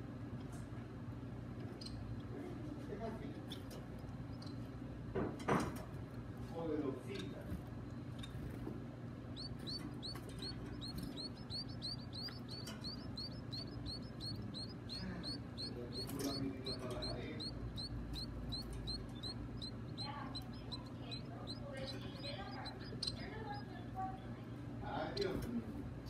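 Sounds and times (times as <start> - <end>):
nestling birds chirping: 7.9 - 25.4.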